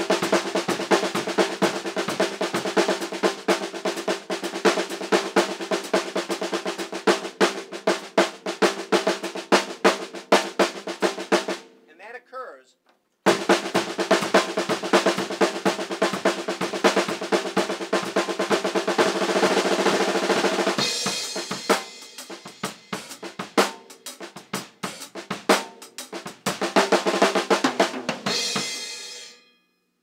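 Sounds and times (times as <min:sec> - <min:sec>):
acoustic drum kit: 0:00.0 - 0:12.1, 0:13.2 - 0:29.4
cymbals: 0:28.2 - 0:29.5.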